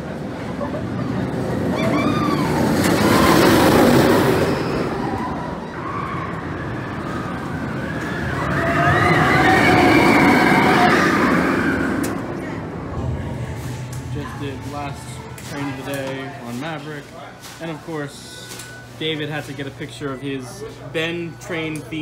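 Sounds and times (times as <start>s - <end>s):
roller coaster train roaring past: 0.0s - 17.2s
riders screaming: 1.7s - 12.3s.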